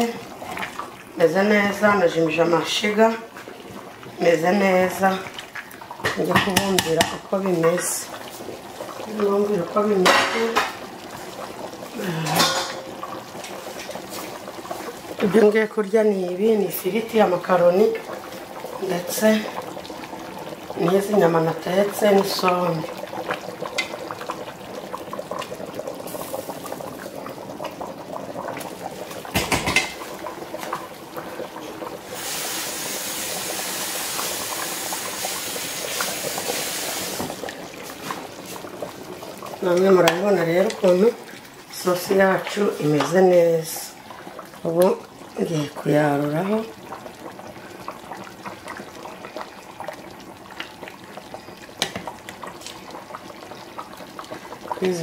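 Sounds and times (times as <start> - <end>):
sauce bubbling in pot: 0.0 - 55.0
steady hiss: 31.2 - 38.7.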